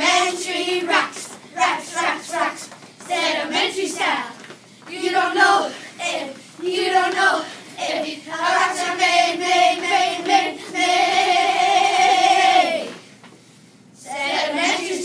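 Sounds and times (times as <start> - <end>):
children singing: 5.0 - 13.0.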